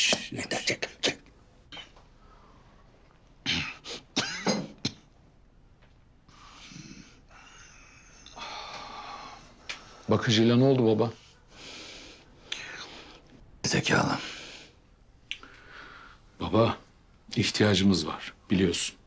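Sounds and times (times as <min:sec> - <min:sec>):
man coughing: 0:03.4 - 0:05.1.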